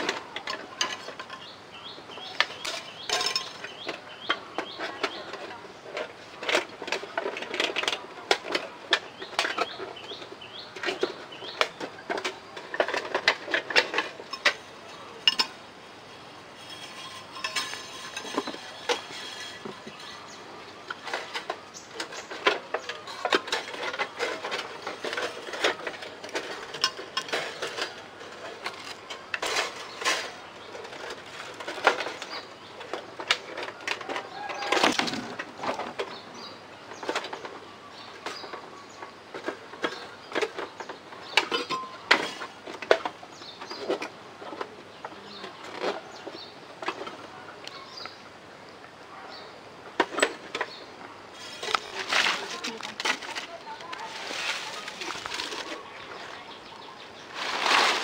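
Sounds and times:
plastic sheeting crinkling: 51.5 - 56.3, 57.3 - 58.0.

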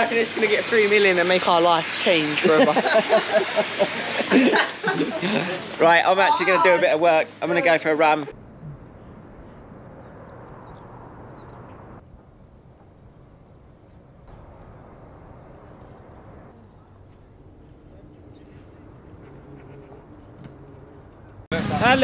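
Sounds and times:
low hum: 8.3 - 21.5
bird chirps: 8.7 - 12.0, 13.4 - 20.3.

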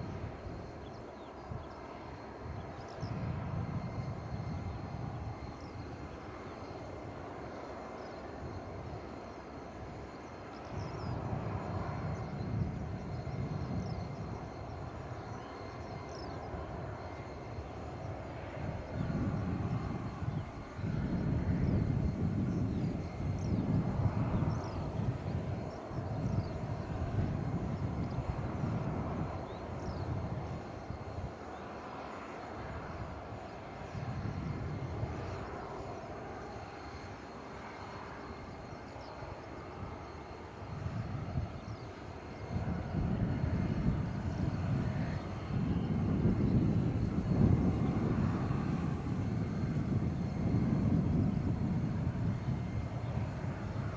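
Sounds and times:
faint high engine whine: 0.0 - 53.9
jet engines rumbling: 0.0 - 53.9.

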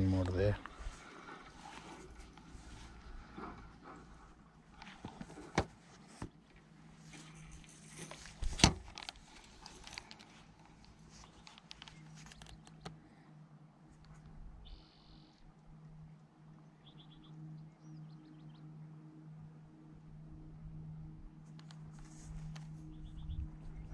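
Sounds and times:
bird chirp: 11.2 - 13.0, 14.6 - 15.4, 16.6 - 19.0, 22.7 - 23.9.

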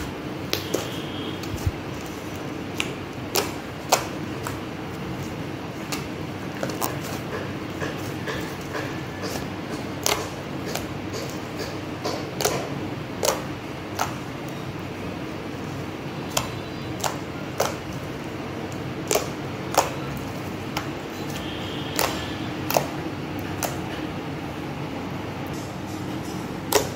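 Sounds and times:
slime clicking and popping: 2.7 - 5.1, 9.2 - 14.6, 16.2 - 18.1, 18.7 - 23.8, 26.7 - 26.9.

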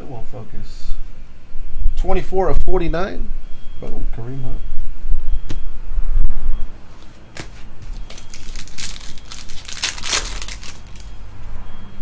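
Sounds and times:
foil wrapper tearing and crinkling: 8.0 - 11.1.

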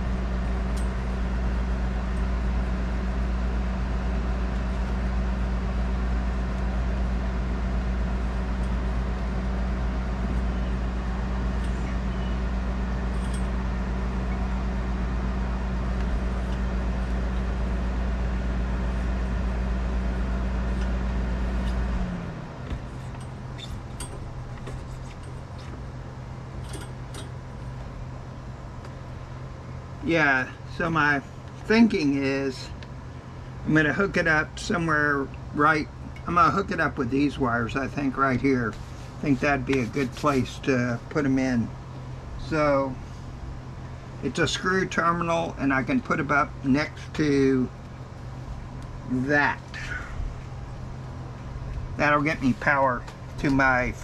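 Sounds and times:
motor humming: 0.0 - 31.7
quieter hum: 0.0 - 54.0.

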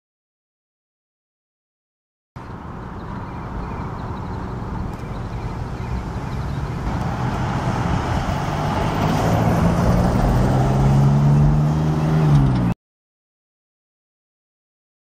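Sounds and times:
diesel locomotive engine drone: 2.4 - 12.7.

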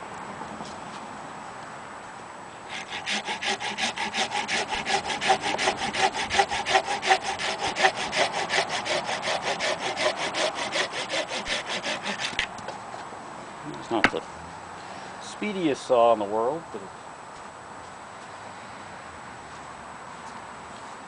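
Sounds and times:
pruning saw cutting branch: 2.7 - 12.7.

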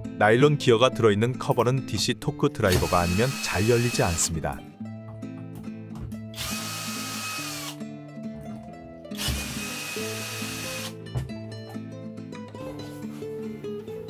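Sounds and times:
cordless drill whining: 2.7 - 4.3, 6.4 - 7.8, 9.2 - 11.0.

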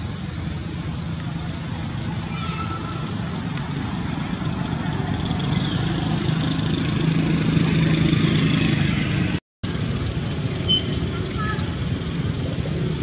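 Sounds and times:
vehicle engine running: 3.2 - 13.0.

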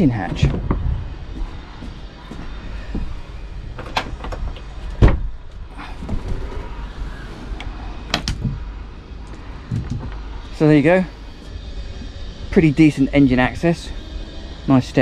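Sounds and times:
steady low rumble: 0.0 - 15.0
low thump: 5.0 - 5.3.

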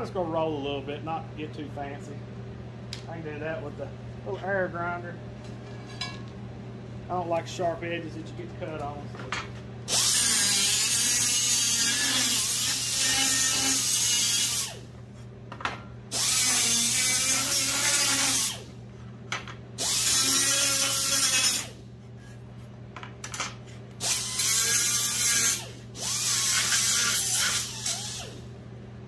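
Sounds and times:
air grinder hissing and whining: 9.9 - 14.9, 16.1 - 18.7, 19.8 - 21.8, 24.0 - 28.5.

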